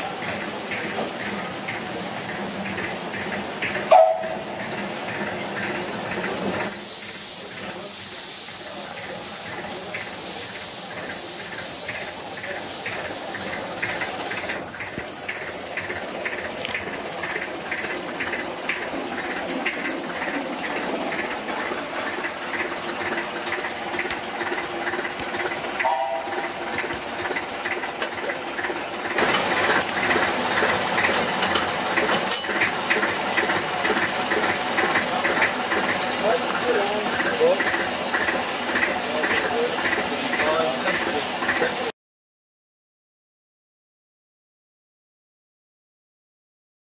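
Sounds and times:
steam engine regular beats: 0.0s - 41.9s
brief high note: 3.9s - 4.4s, 25.8s - 26.4s
steam locomotive hissing steam: 5.6s - 41.9s.

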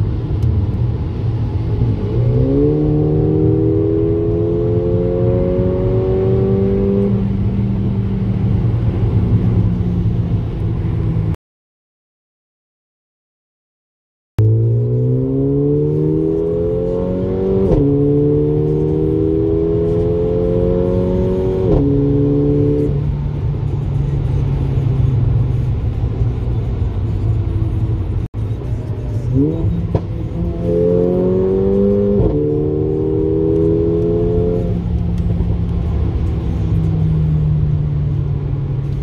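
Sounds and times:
car engine accelerating: 0.0s - 11.4s, 14.4s - 39.0s.

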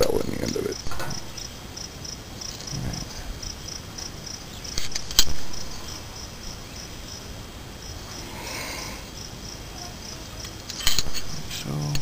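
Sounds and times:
insects chirping in pulses: 0.0s - 12.0s
sharp metal clicks: 10.4s - 11.3s.

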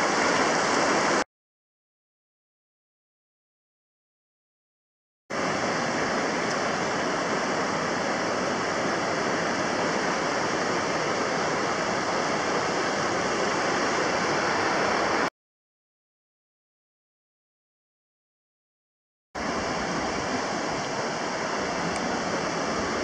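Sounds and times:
river water rushing: 0.0s - 1.2s, 5.4s - 15.3s, 19.4s - 23.0s.

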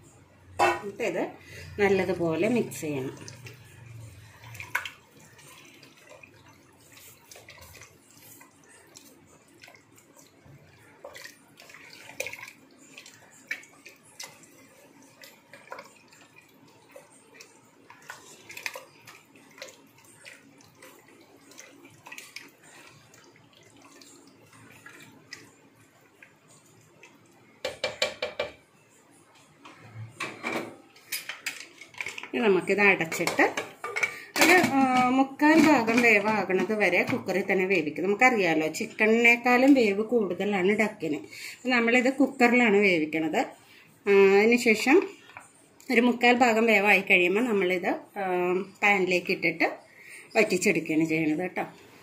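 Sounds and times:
wet sloshing of hand mixing: 0.8s - 27.6s
wooden spatula knocking pot: 27.6s - 28.6s.

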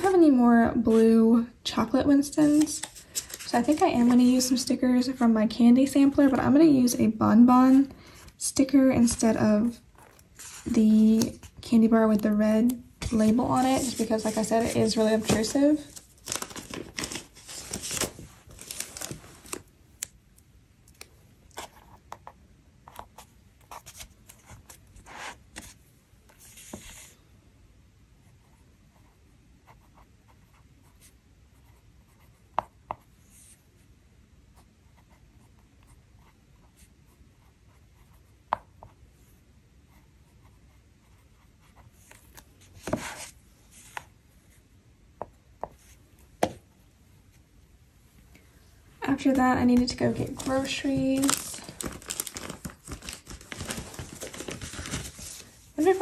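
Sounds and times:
paper rustling: 2.4s - 4.5s, 10.0s - 12.2s, 13.0s - 19.7s, 42.0s - 44.0s, 49.2s - 56.0s.

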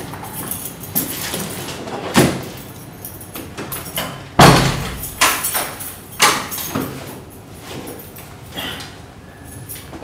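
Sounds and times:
front door shutting and latching: 3.5s - 7.1s.

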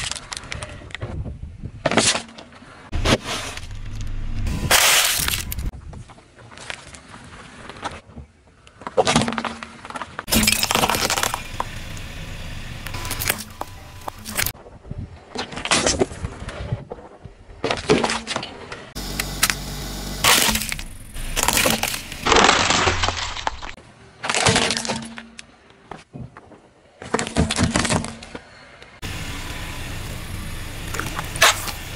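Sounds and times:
tyre crushing plastic objects: 9.0s - 11.8s, 20.2s - 25.2s.

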